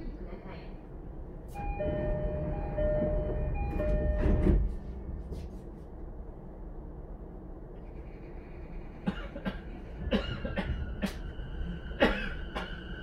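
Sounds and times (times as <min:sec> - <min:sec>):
train equipment humming: 0:00.0 - 0:13.0
two-tone door chime: 0:01.6 - 0:04.6
train doors sliding shut: 0:01.6 - 0:04.9.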